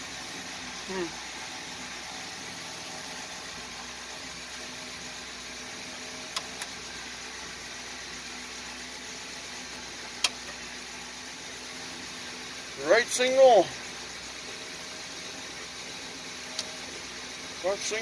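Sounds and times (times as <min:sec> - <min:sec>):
truck engine idling: 0:00.0 - 0:18.0
sharp switch clicks: 0:10.2 - 0:10.5.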